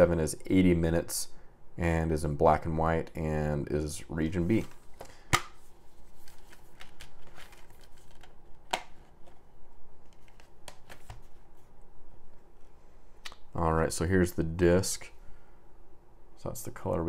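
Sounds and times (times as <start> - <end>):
plastic case snapping open: 6.8 - 9.4.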